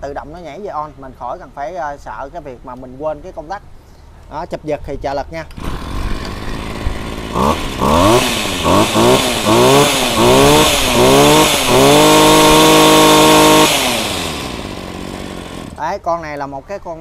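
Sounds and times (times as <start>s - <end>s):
brush cutter engine revving: 5.5s - 15.8s.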